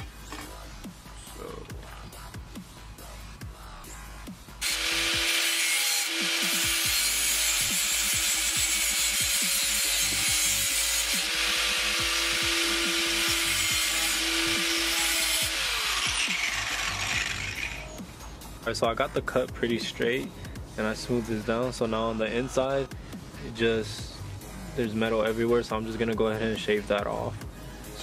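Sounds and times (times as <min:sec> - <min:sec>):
angle grinder cutting metal: 0:04.6 - 0:18.0.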